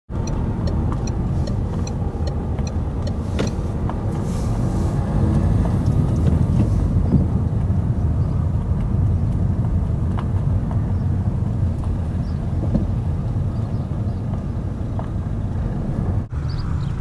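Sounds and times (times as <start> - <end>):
car engine and tyres rumble: 0.1 - 17.0
faint regular ticking: 0.2 - 3.6.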